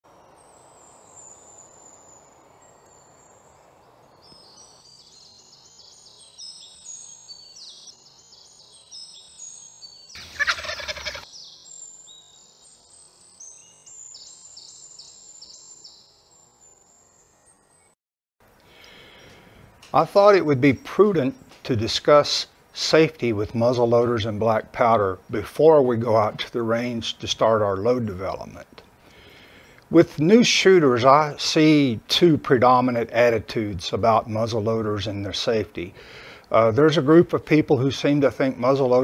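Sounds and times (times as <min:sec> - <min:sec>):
birds chirping: 0:00.1 - 0:39.0
loud rattling bird call: 0:10.1 - 0:11.3.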